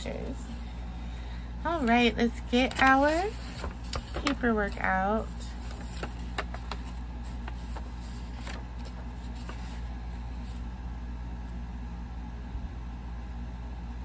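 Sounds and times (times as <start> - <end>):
low background hum: 0.0 - 14.0
paper rustling and crinkling: 1.7 - 10.7.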